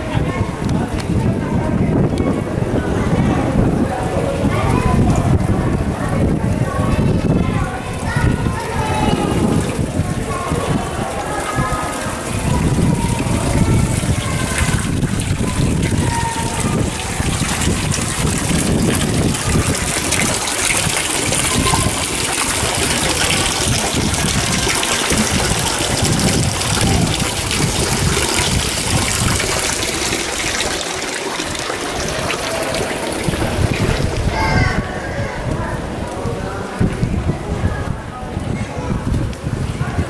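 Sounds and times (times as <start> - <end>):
fountain water splashing into basin: 2.9 - 34.8.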